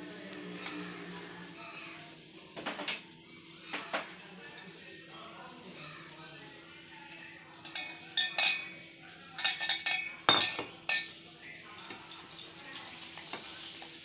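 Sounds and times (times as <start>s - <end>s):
metal utensils clinking on cookware: 7.5s - 14.0s.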